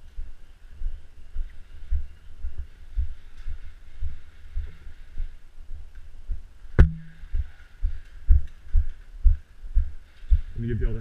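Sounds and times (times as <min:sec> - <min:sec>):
footsteps on concrete: 0:00.2 - 0:10.5
sharp knock: 0:06.8 - 0:07.4.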